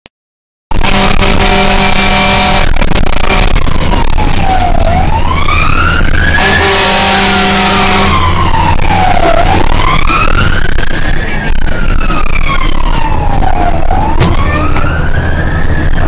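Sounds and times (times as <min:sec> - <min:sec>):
truck horn blasts: 0:00.7 - 0:03.6, 0:06.4 - 0:08.2
siren wailing: 0:00.7 - 0:16.0
truck engine drone: 0:00.7 - 0:16.0.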